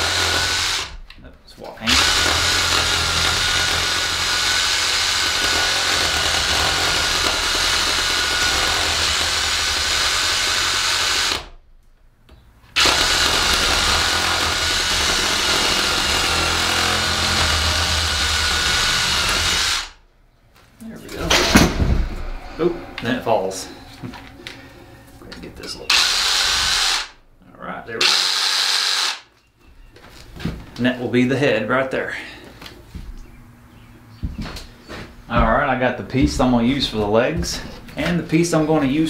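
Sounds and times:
reciprocating saw cutting log: 0:01.9 - 0:11.5, 0:12.8 - 0:20.0.

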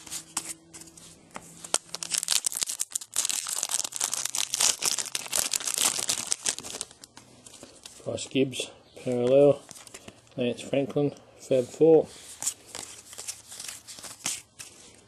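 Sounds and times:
wrapper tearing and crinkling: 0:01.6 - 0:07.2.

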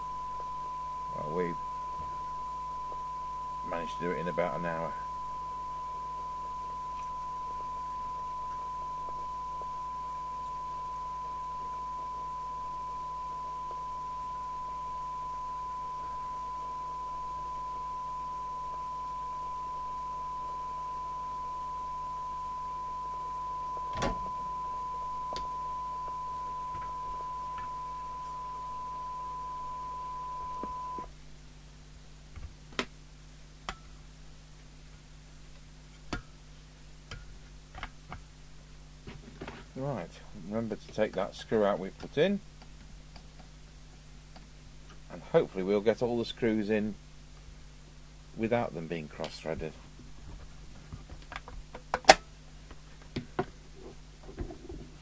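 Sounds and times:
steady test tone through speaker: 0:00.0 - 0:31.2, 0:48.0 - 0:50.4.

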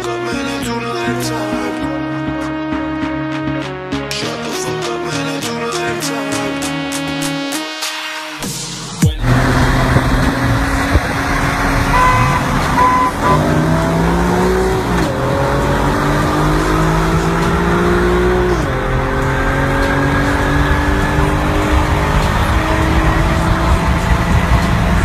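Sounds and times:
car engine accelerating hard: 0:09.1 - 0:25.0
road and wind noise: 0:09.2 - 0:25.0.

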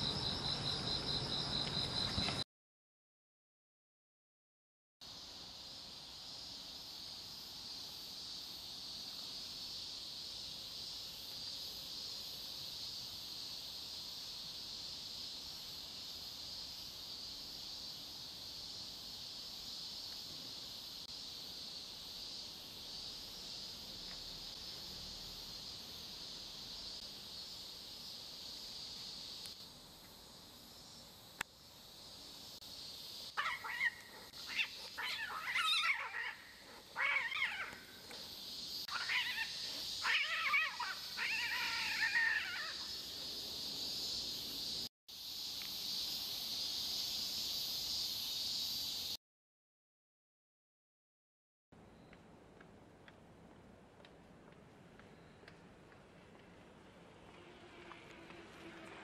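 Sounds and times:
high-pitched insect chorus: 0:00.0 - 0:02.4, 0:05.0 - 0:49.2
cats fighting and yowling: 0:33.4 - 0:37.9, 0:38.9 - 0:42.9.

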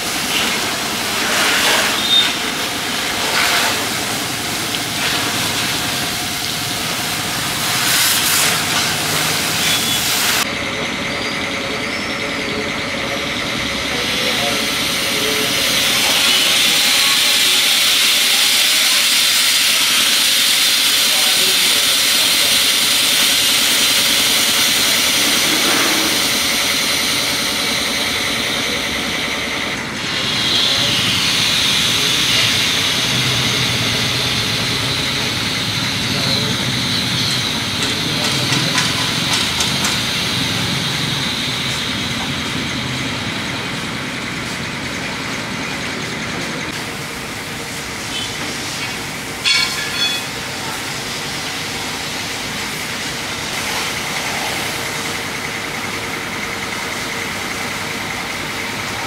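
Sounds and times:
hydraulic lift hissing: 0:00.0 - 0:45.1.

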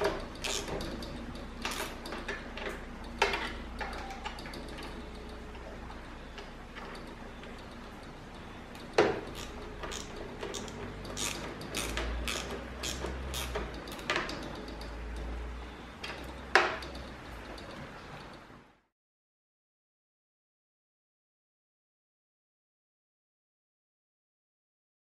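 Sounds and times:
ratchet wrench clicking: 0:00.2 - 0:02.1, 0:09.2 - 0:14.9.

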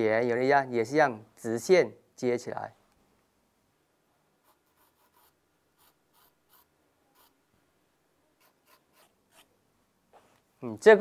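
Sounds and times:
pencil scratching on paper: 0:04.4 - 0:07.4, 0:08.4 - 0:09.6.

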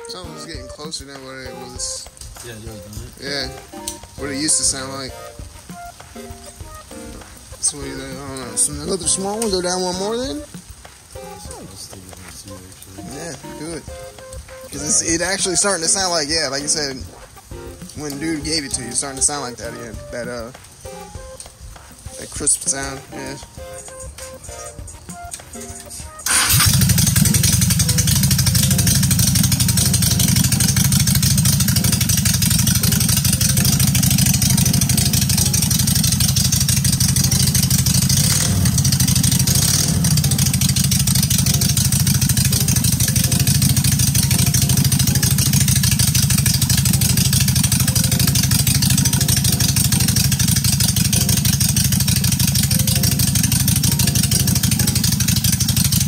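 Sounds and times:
motorcycle engine running: 0:26.2 - 0:56.0.

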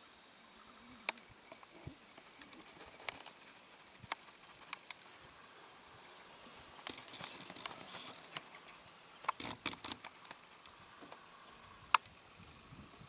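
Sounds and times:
deer cropping grass: 0:06.6 - 0:08.7.

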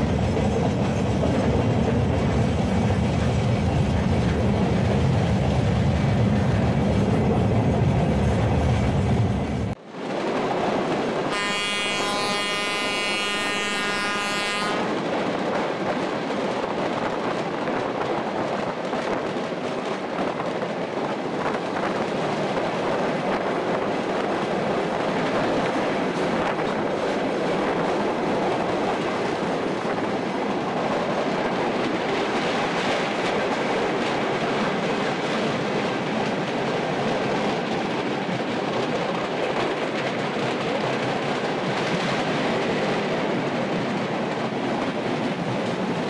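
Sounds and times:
train rumbling: 0:00.0 - 0:46.0
train wheels on rails: 0:00.0 - 0:46.0
train horn: 0:11.3 - 0:14.9.

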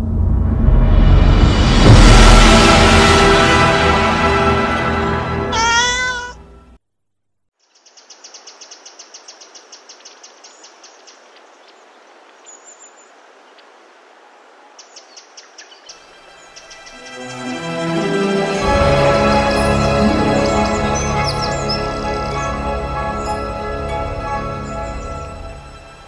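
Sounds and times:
music: 0:00.0 - 0:06.8, 0:16.7 - 0:26.0.

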